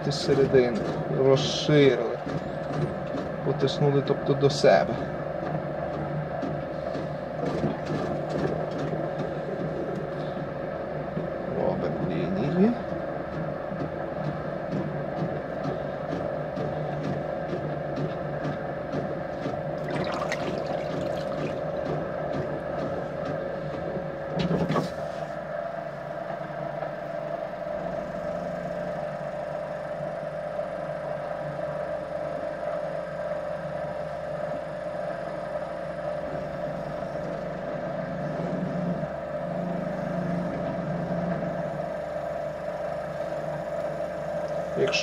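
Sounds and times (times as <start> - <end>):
potter's wheel motor humming: 0.0 - 45.0.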